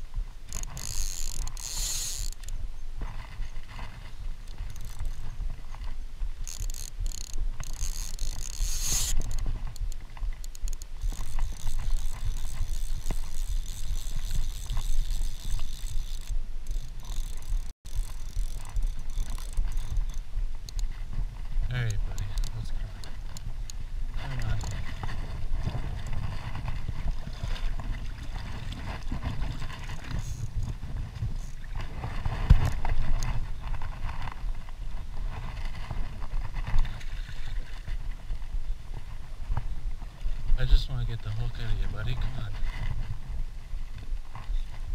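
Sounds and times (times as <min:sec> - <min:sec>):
wind rumble on microphone: 0:00.0 - 0:44.9
fishing reel ratcheting: 0:00.5 - 0:02.6, 0:04.4 - 0:05.2, 0:06.4 - 0:20.9, 0:21.9 - 0:24.9, 0:30.0 - 0:30.7.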